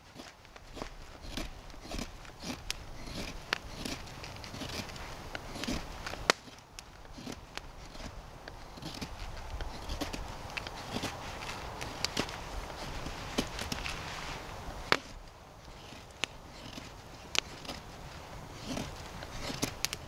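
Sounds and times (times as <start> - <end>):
footsteps on forest floor: 0.0 - 20.0
twigs snapping: 0.0 - 20.0.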